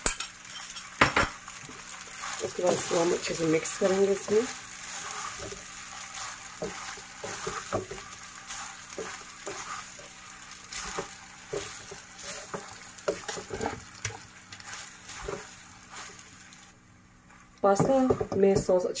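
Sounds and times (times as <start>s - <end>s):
pan sizzling: 0.0s - 19.0s
spatula scraping a pan: 1.6s - 16.5s.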